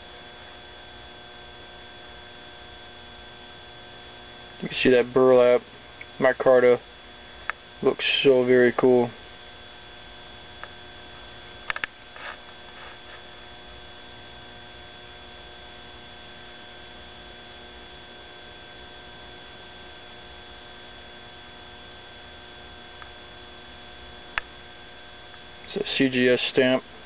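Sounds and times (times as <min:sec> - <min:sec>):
electrical hum with hiss: 0:00.0 - 0:27.0
soft rustles: 0:12.2 - 0:13.3.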